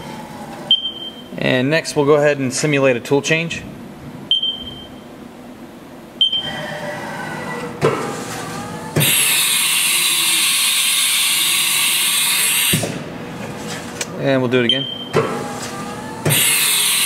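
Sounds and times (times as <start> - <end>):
short control beep: 0.7 - 1.3, 4.3 - 5.0, 6.2 - 6.5, 14.7 - 15.1.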